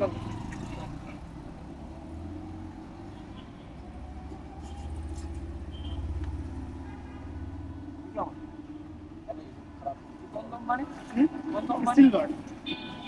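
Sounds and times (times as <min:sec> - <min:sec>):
vehicle engine droning: 0:00.0 - 0:09.9
street traffic: 0:00.0 - 0:13.0.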